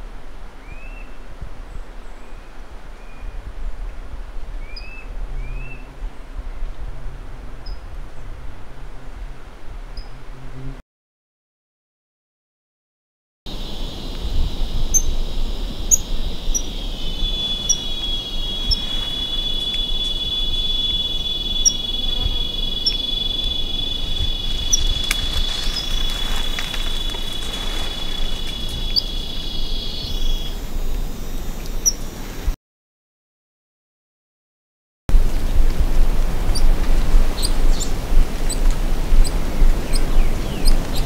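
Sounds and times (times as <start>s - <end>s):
high-pitched insect drone: 13.5s - 32.5s
monkey alarm calls: 14.9s - 32.2s.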